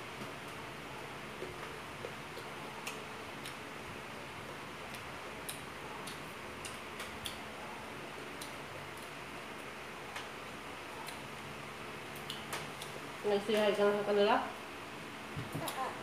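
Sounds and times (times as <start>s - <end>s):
mouth chewing food: 4.4s - 7.5s.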